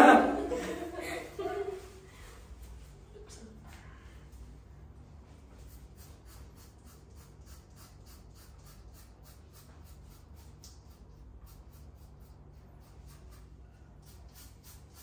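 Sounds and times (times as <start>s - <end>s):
razor scraping on scalp: 5.5s - 15.0s.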